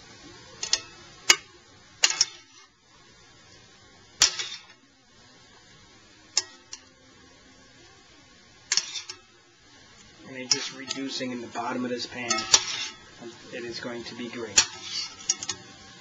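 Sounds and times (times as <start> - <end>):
faint steady hiss: 0.0 - 16.0
metal tongs clacking on pan: 0.6 - 2.7, 4.2 - 4.8, 6.3 - 6.9, 8.7 - 9.4, 10.4 - 11.2, 12.2 - 13.1, 14.5 - 15.7.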